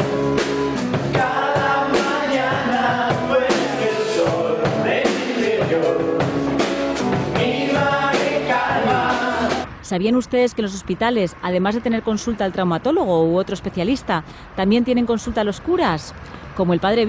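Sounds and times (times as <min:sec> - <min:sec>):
rock band playing: 0:00.0 - 0:09.6
drums steady beat: 0:00.0 - 0:09.7
man singing: 0:01.2 - 0:06.7, 0:07.4 - 0:09.6.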